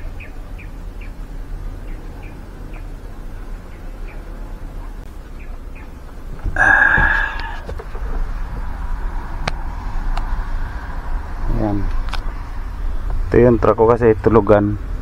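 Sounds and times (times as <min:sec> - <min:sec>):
faint bird chirps: 0:00.0 - 0:06.0
low steady hum: 0:00.0 - 0:15.0.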